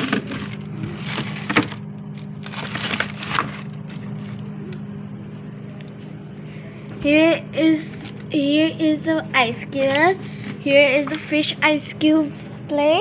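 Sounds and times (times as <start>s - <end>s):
plastic drawers clattering: 0.0s - 4.4s
steady low hum: 0.0s - 13.0s.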